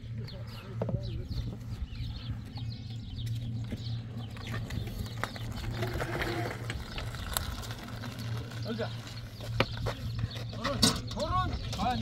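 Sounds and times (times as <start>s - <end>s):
birds chirping and calling: 0.0s - 12.0s.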